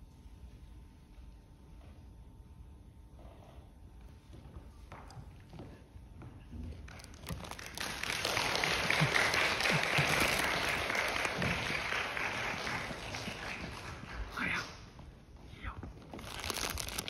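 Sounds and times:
audience applauding: 6.9s - 14.4s.

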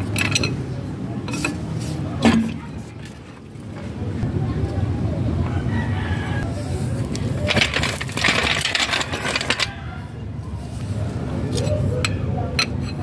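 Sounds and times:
rooster crowing: 5.4s - 6.5s, 9.6s - 10.2s.

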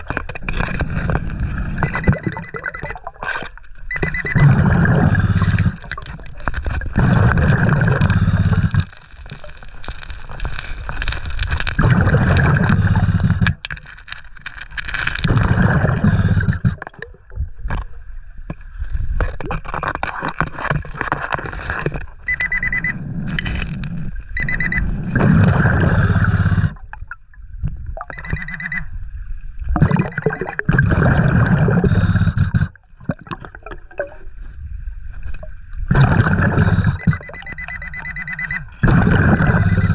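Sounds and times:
underwater bubbles gurgling: 0.0s - 13.9s, 14.9s - 39.9s
metal detector beeps: 1.8s - 3.1s, 3.9s - 5.8s, 22.2s - 23.1s, 24.4s - 25.0s, 28.1s - 29.0s, 29.9s - 30.6s, 36.6s - 39.9s.

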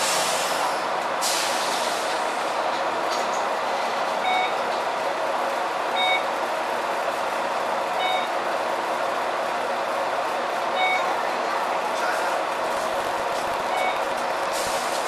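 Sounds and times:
bus cabin rumble and hiss: 0.0s - 15.0s
short electronic beeps: 4.2s - 4.6s, 6.0s - 6.3s, 8.0s - 8.3s, 10.8s - 11.2s, 13.7s - 14.1s.

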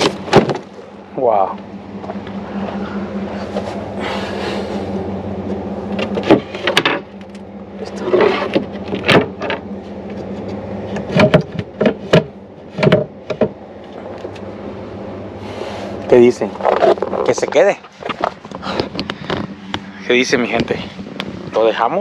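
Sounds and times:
wooden knocks and clunks: 0.0s - 0.7s, 8.4s - 9.6s, 10.9s - 13.6s
steady low hum: 0.0s - 22.0s.

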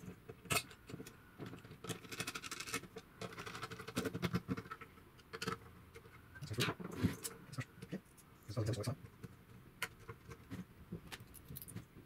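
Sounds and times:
small clicks taps and rustles: 8.9s - 12.0s.

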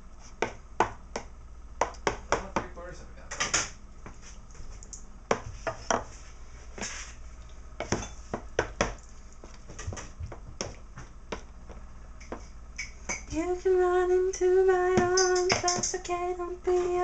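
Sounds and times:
kitchenware clinking and knocking: 15.0s - 16.0s.

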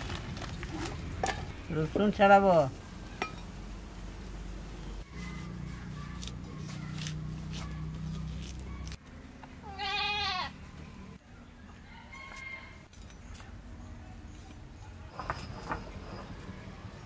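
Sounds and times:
goat bleating: 9.6s - 10.6s.

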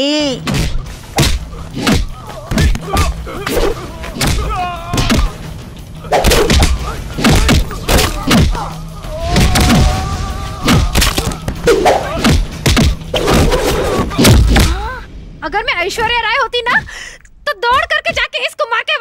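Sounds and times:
dramatic background score: 0.0s - 19.0s
punch and kick thuds: 0.4s - 3.2s, 6.2s - 8.6s, 10.7s - 14.9s.

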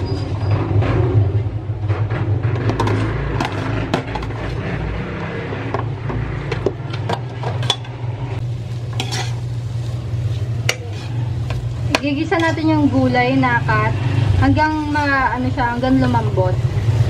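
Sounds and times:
steady low hum: 0.5s - 17.0s
spatula scraping a pot: 2.6s - 5.2s, 8.8s - 13.1s
vegetables sizzling in oil: 8.4s - 17.0s.

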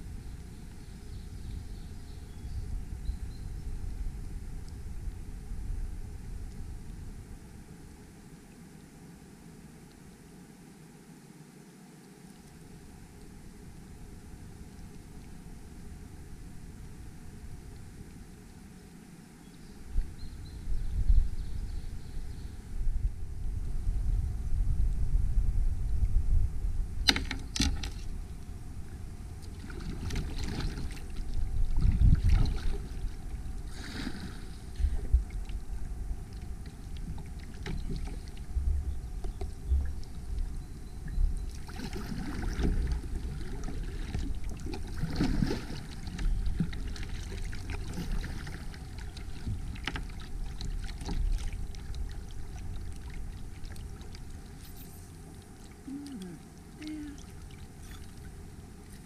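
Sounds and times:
water sloshing and splashing: 27.1s - 38.6s, 39.2s - 59.0s
low rumble: 27.9s - 37.5s.

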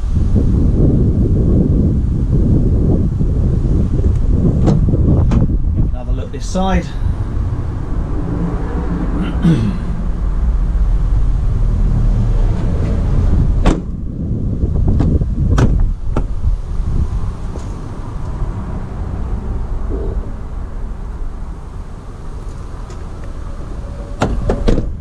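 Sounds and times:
steady low rumble: 0.0s - 25.0s
car door unlatching clicks: 4.6s - 5.5s
van side door slamming: 4.6s - 5.6s, 13.6s - 14.0s, 15.0s - 16.4s, 24.2s - 25.0s.

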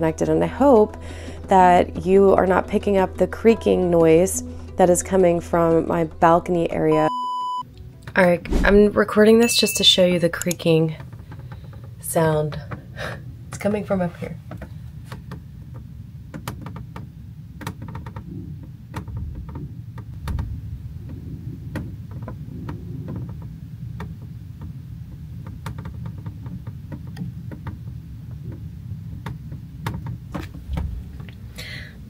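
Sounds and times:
low rumble: 8.1s - 9.4s, 19.1s - 24.3s
ticking and knocking: 14.5s - 31.4s
creaking: 16.5s - 32.0s.

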